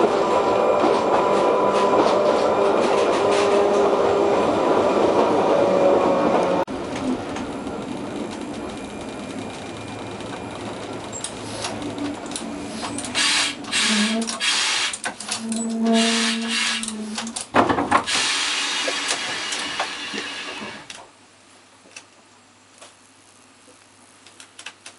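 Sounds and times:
tram running hum: 0.0s - 20.9s
hiss and sharp clicks: 11.2s - 11.8s, 18.1s - 21.1s, 21.9s - 24.9s.

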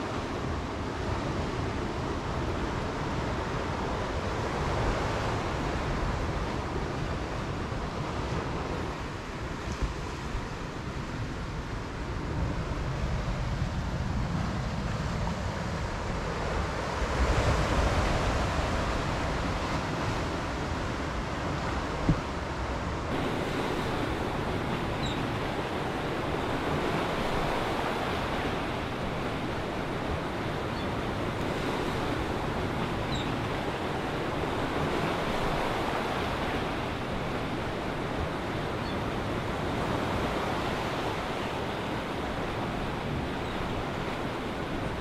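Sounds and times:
surf washing onto shore: 0.0s - 45.0s.

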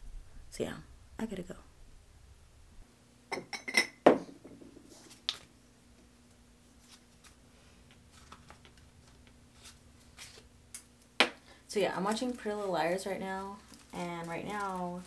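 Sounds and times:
faint steady hum: 0.0s - 15.0s
paper rustling: 8.0s - 10.5s, 11.8s - 15.0s.

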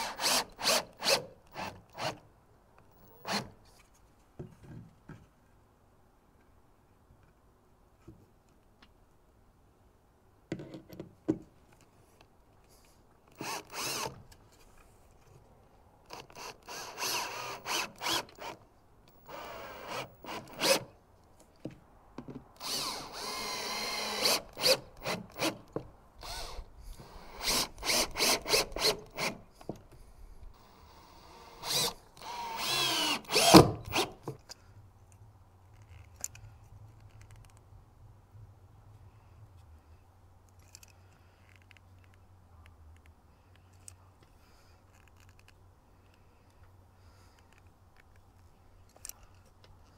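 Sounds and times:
cordless drill driving screws: 0.0s - 2.2s, 13.3s - 14.2s, 16.1s - 20.9s, 22.6s - 29.4s, 30.6s - 34.2s.

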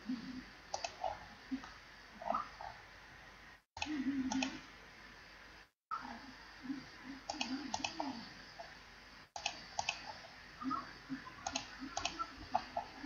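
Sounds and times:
computer mouse clicking: 0.7s - 1.8s, 3.8s - 4.6s, 7.2s - 8.7s, 9.4s - 10.3s, 11.2s - 13.0s.

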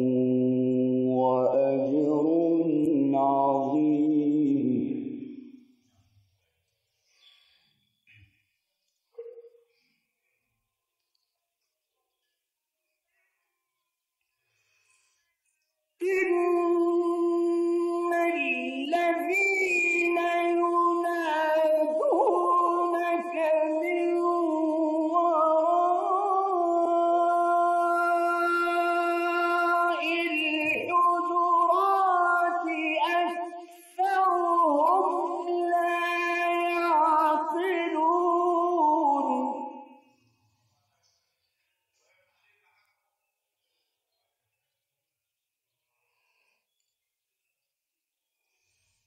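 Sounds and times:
man chanting melodically: 0.0s - 5.3s.

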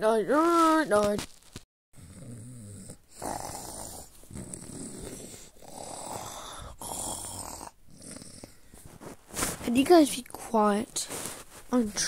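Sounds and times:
person pretend snoring: 2.0s - 8.8s.

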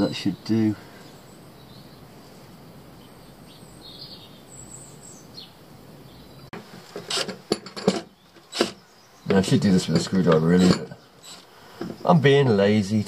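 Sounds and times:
faint bird chirps: 0.0s - 6.5s
faint background noise: 0.0s - 13.0s.

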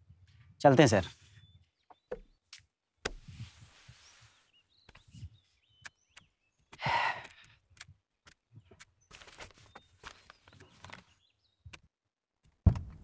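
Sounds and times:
bird chirps: 0.7s - 2.6s, 3.9s - 7.4s
footsteps on dry grass: 9.1s - 11.0s
clothes rustling: 9.1s - 11.2s.

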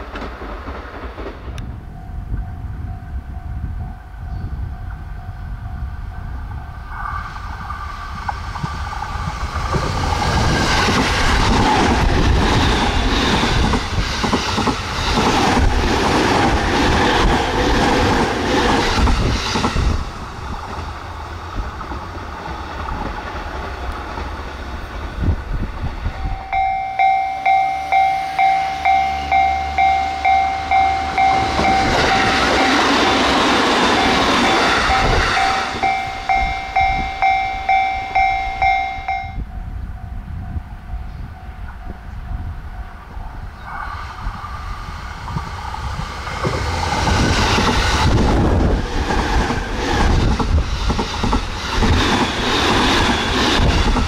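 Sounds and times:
train wheels clattering: 0.0s - 1.7s, 8.2s - 21.0s, 21.7s - 39.3s, 45.2s - 54.0s
train rushing past: 0.0s - 54.0s
level crossing bell ringing: 26.2s - 33.2s, 33.9s - 39.5s.

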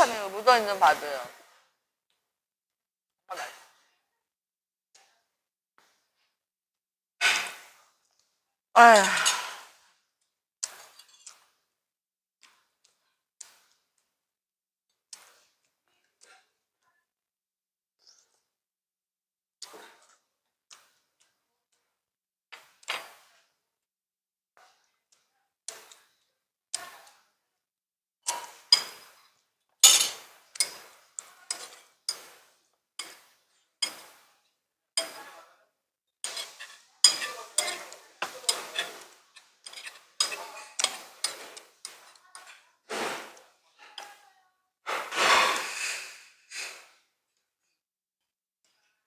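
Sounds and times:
metal spoon scraping stone pot: 10.8s - 11.4s, 29.8s - 30.8s, 31.4s - 32.3s, 36.2s - 43.1s
tableware clinking: 28.3s - 29.1s, 29.8s - 32.4s, 36.2s - 42.6s.

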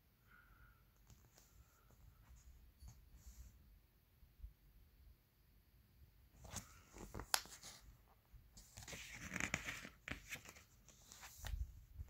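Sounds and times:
page rustling: 6.4s - 7.9s, 8.6s - 11.7s.

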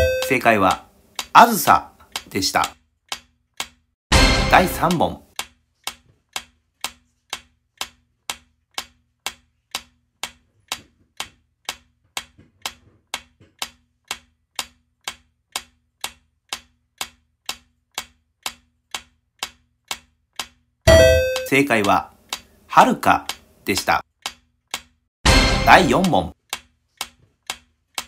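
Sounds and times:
clock-like timer ticking: 0.0s - 28.0s.

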